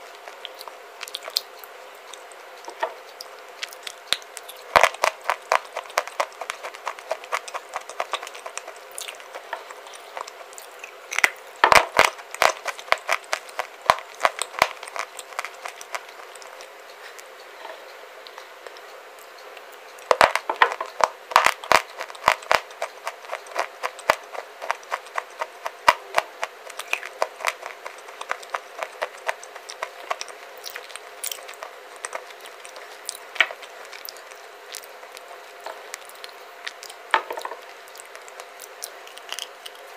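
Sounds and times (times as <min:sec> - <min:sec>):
clay crunching being chewed: 0:00.0 - 0:39.9.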